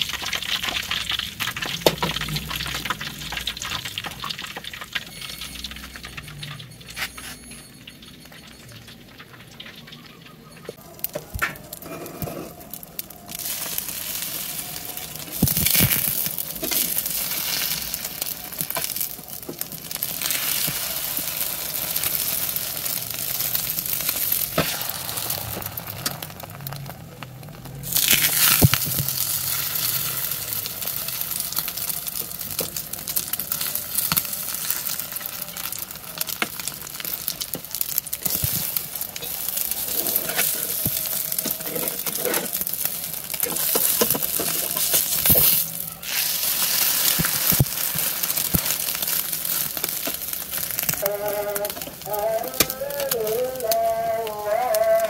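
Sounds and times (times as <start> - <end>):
egg sizzling in oil: 0.0 - 55.0
metal spatula scraping a pan: 39.7 - 48.0.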